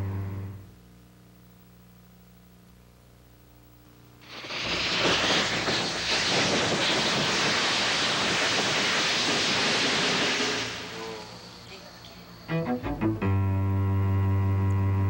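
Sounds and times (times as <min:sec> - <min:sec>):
loud steady rushing hiss: 0:00.0 - 0:00.8, 0:03.9 - 0:15.0.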